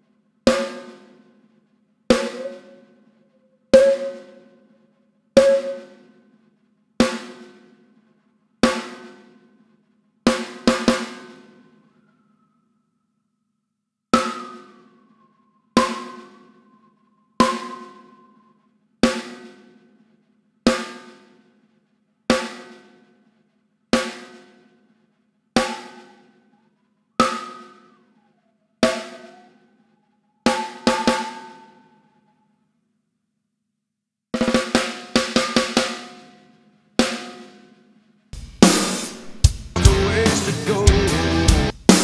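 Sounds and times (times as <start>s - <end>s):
whistling ring gliding in pitch: 2.2s - 4.7s, 5.4s - 6.0s, 11.7s - 13.0s, 14.2s - 18.8s, 25.6s - 32.6s
snare drum hits: 38.6s - 39.9s, 41.8s - 42.0s.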